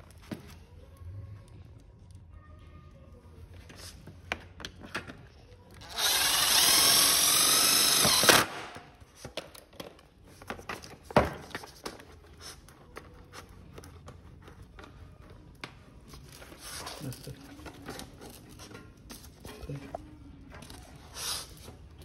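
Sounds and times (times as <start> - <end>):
cordless drill running: 5.8 - 8.6.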